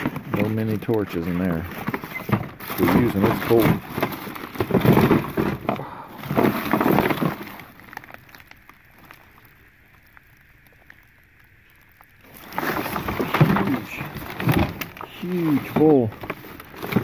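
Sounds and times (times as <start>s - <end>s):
plastic bags and papers rustling: 0.0s - 17.0s.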